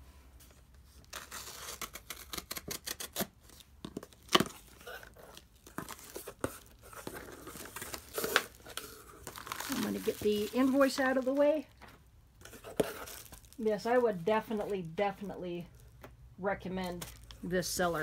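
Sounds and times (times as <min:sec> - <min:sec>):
packing tape ripping off cardboard: 0:01.0 - 0:11.4.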